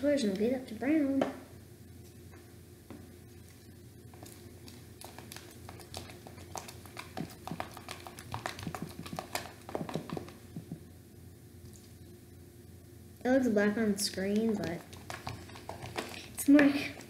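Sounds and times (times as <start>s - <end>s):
spoon scraping plastic bowl: 14.4s - 17.0s.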